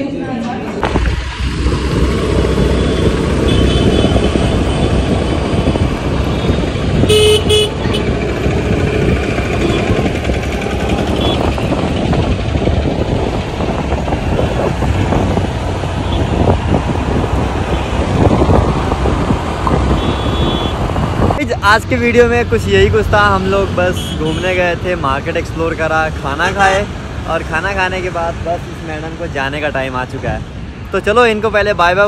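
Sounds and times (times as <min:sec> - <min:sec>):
traffic engines rumbling: 0:00.0 - 0:32.0
car horn toots: 0:03.4 - 0:04.9, 0:06.4 - 0:08.1, 0:09.6 - 0:10.0, 0:11.0 - 0:11.7, 0:19.9 - 0:20.8.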